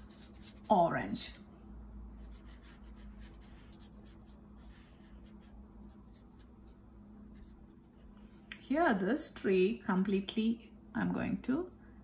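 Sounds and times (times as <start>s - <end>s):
paintbrush strokes on paper: 0.0s - 1.3s, 2.1s - 8.4s
low steady hum: 0.0s - 12.0s.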